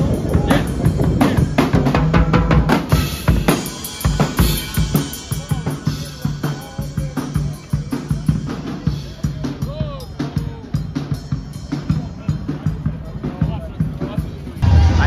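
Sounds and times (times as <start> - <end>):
drum kit playing fast beat: 0.0 - 15.0.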